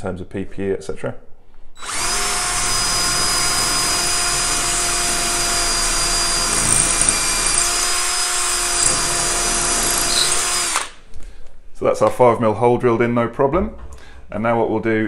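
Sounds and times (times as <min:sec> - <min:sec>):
drill boring into concrete: 0:01.8 - 0:11.0.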